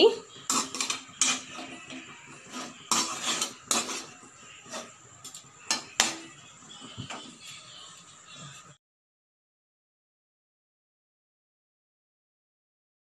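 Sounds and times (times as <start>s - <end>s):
metal spatula scraping a wok: 0.2s - 8.8s.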